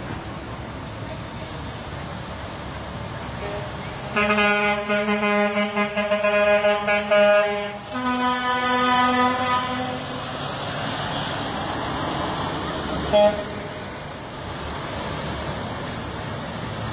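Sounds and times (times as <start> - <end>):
road noise: 0.0 - 16.9
truck engine: 0.0 - 16.9
truck air horn blasts: 3.4 - 10.2, 13.1 - 13.8.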